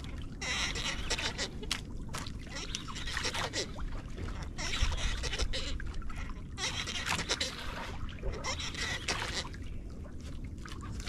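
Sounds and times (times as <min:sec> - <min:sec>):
water splashing against boat hull: 0:00.0 - 0:11.0.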